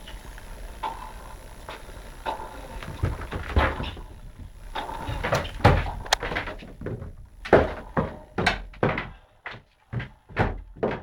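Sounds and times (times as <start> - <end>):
cat pouncing and thumping: 2.9 - 4.2, 4.8 - 9.1.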